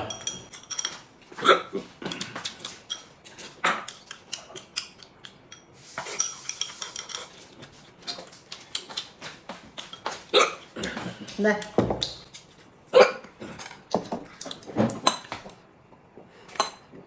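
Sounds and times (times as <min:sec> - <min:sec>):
person chewing and slurping: 0:01.3 - 0:11.4
chopsticks clicking on a bowl: 0:03.8 - 0:05.6.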